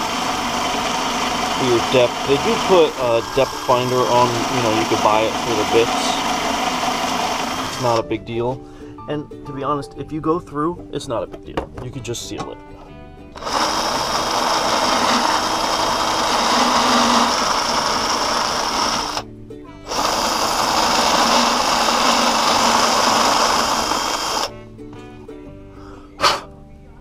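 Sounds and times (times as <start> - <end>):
electric drill boring into metal: 0.0 - 8.0, 13.4 - 19.2, 19.9 - 24.5.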